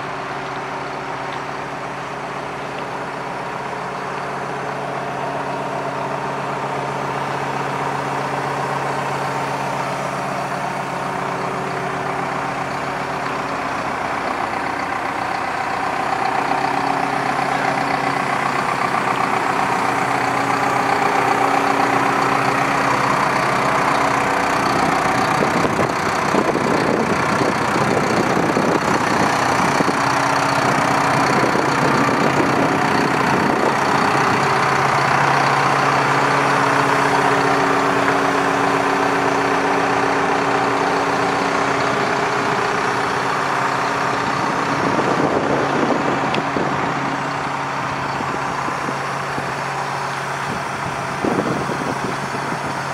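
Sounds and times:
diesel engine idling: 0.0 - 52.9.

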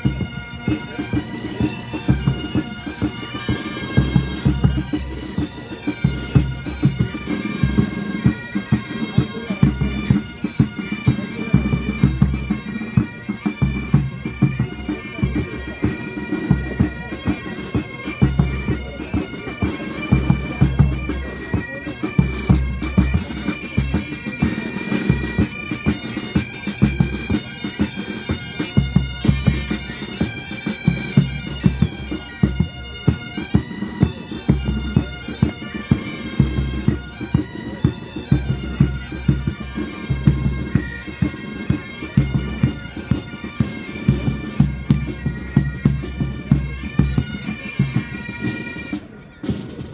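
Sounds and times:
bagpipes playing melody: 0.0 - 49.9
drums beating march rhythm: 0.0 - 49.9.

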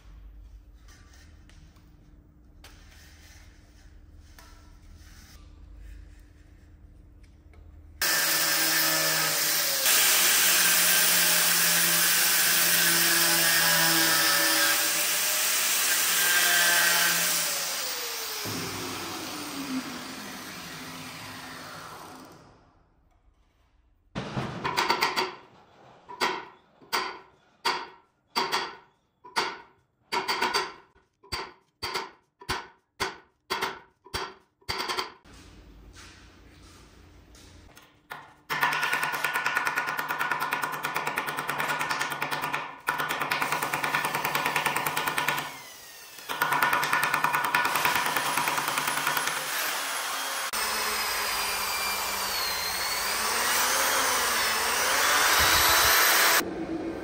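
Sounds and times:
electric drill running: 14.1 - 22.4, 45.0 - 46.7, 47.6 - 56.4.

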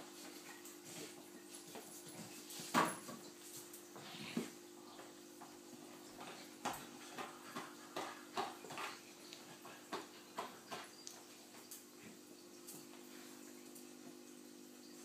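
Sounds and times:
dog claws clicking and scuffing: 6.2 - 11.9.

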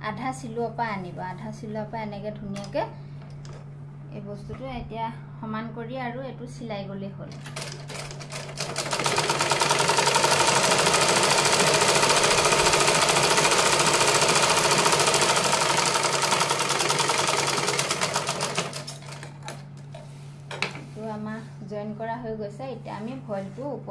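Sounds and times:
sewing machine clatter: 7.4 - 19.6.

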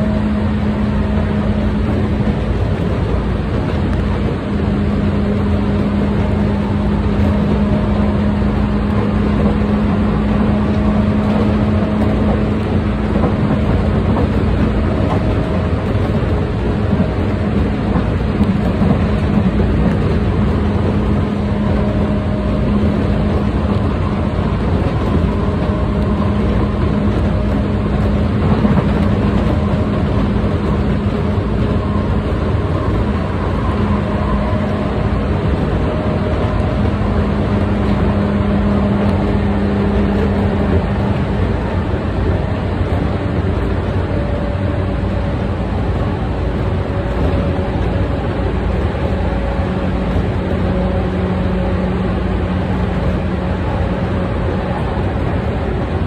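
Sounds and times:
train motor hum: 0.0 - 56.0
wheels rumbling on rail: 0.0 - 56.0.

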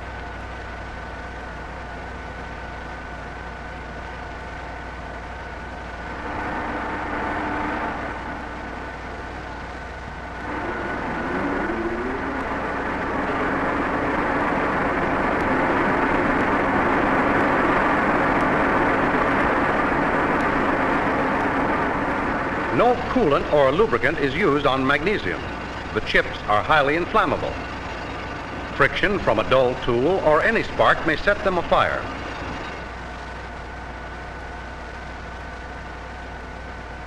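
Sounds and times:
boring mill machine hum: 0.0 - 37.0
machine rising whine: 0.0 - 37.0.

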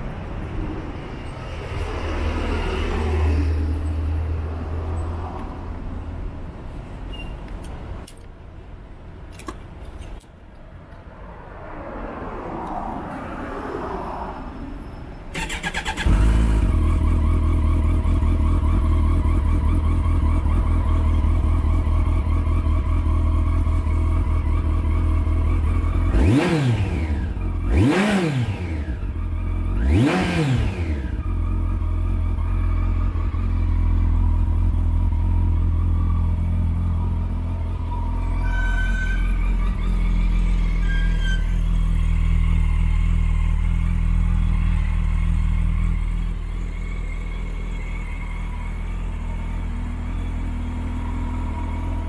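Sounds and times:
motorcycle starter cranking: 15.4 - 16.2
engine revving: 15.4 - 21.4, 25.5 - 33.5
motorcycle engine idling: 15.8 - 26.1, 41.5 - 52.0.

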